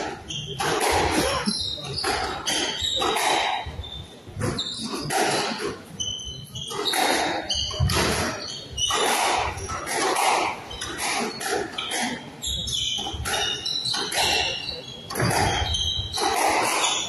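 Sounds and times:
shoes squeaking on wooden floor: 0.0s - 17.0s
squash ball knocking: 15.1s - 17.0s.

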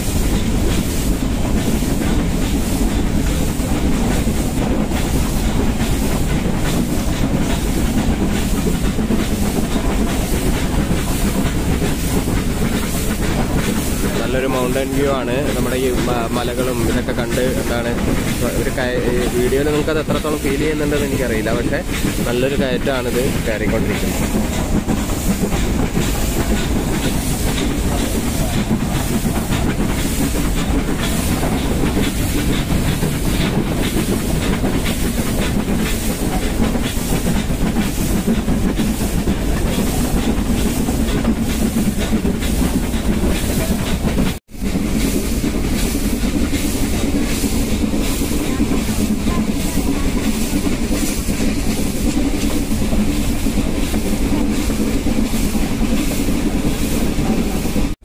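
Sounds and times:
train rumbling: 0.0s - 58.0s
train wheels clicking on rails: 0.0s - 58.0s.

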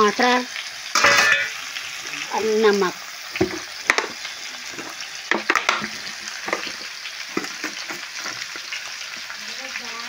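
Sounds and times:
vegetables sizzling in oil: 0.0s - 10.0s
spatula scraping metal pan: 1.0s - 1.7s.

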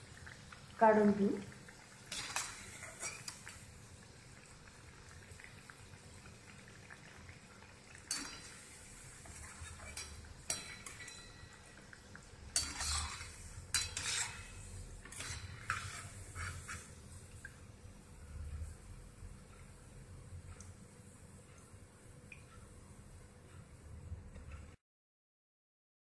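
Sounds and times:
frying oil sizzling: 0.0s - 22.7s
metal spoon scraping iron pan: 2.1s - 3.4s, 8.1s - 8.6s, 9.2s - 11.6s, 12.6s - 17.0s.

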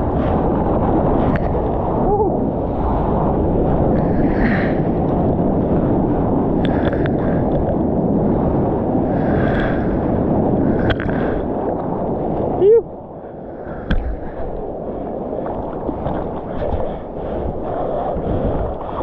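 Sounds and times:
wind noise on microphone: 0.0s - 19.0s.

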